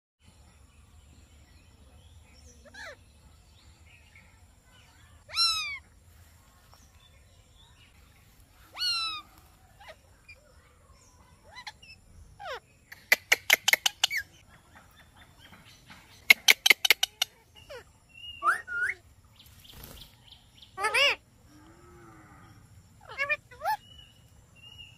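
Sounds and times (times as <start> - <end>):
parakeets calling harshly: 2.6 - 3.0, 5.3 - 5.9, 8.7 - 10.4, 11.4 - 14.4, 16.1 - 19.0, 20.8 - 21.2, 23.0 - 24.1.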